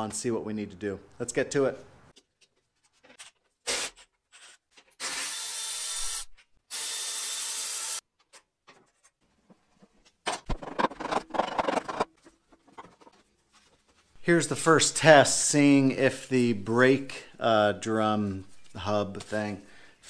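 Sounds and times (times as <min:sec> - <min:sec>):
metal parts clattering: 0:10.3 - 0:13.1.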